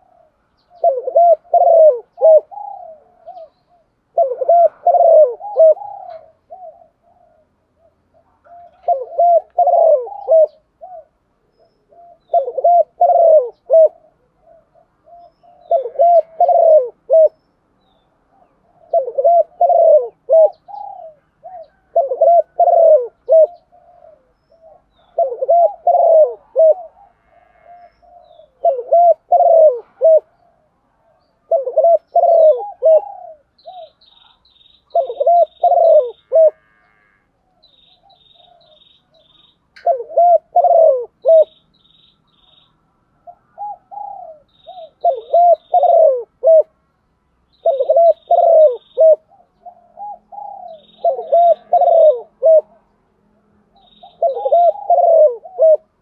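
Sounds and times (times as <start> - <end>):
dove cooing: 0.0 - 17.4, 18.2 - 41.7, 42.3 - 46.8, 47.5 - 52.9, 53.7 - 56.0
small bird chirping: 32.0 - 36.3, 37.6 - 40.1, 41.3 - 46.2, 47.5 - 52.2, 53.8 - 55.1.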